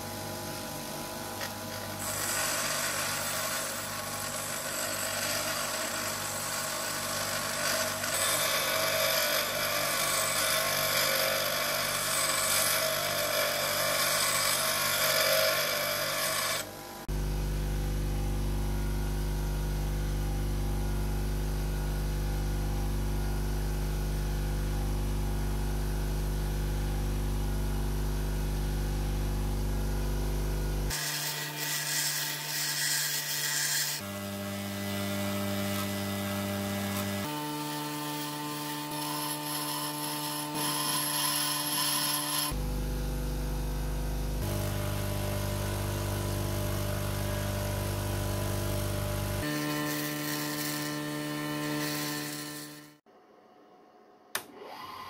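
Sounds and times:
grinder motor hum: 0:00.0 - 0:53.0
grinder wheel grinding metal: 0:00.6 - 0:16.7, 0:30.9 - 0:42.6, 0:44.2 - 0:53.0.

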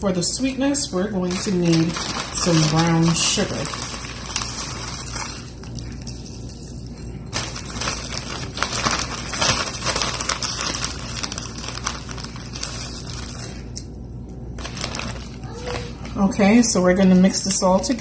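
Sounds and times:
sugar package crinkling: 0:00.3 - 0:16.1.

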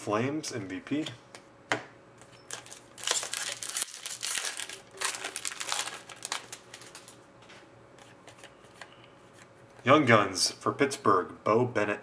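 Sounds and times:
foil wrapper tearing and crinkling: 0:02.5 - 0:07.2.

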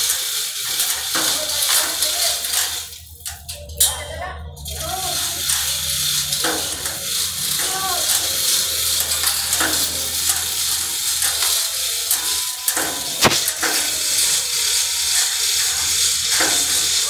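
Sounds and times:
sharp knock: 0:13.2 - 0:13.4.

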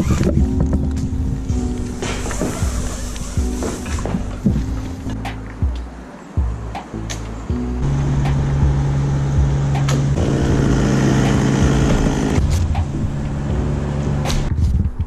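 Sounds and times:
chainsaw cutting wood: 0:09.8 - 0:12.4.

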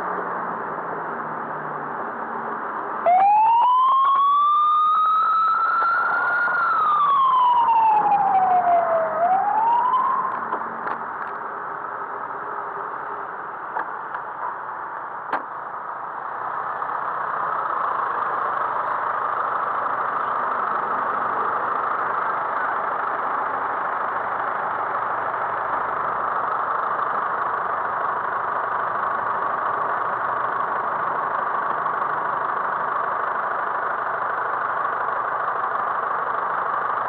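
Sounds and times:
street traffic rush: 0:00.0 - 0:37.0
emergency siren wailing: 0:03.0 - 0:10.5.

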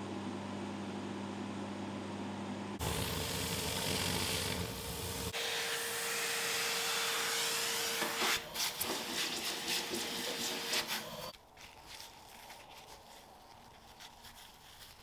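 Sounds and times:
polishing machine whirring: 0:02.8 - 0:06.8.

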